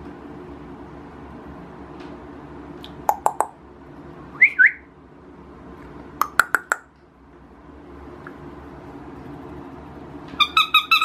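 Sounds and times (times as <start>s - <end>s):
tongue clicks: 2.8s - 3.6s, 6.2s - 6.9s
whistled chirps: 4.3s - 4.9s.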